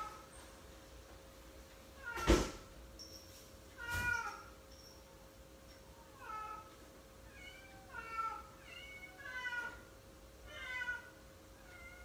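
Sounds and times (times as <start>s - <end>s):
cat meowing: 3.8s - 4.5s, 7.3s - 9.9s, 10.5s - 12.0s.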